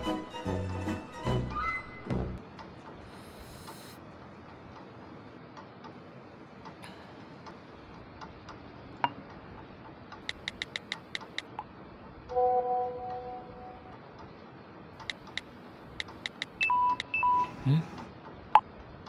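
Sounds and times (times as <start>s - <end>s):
room hiss: 3.0s - 4.3s
light clicks: 9.3s - 11.7s, 15.0s - 17.1s
sharp click: 10.1s - 11.6s, 15.0s - 17.1s.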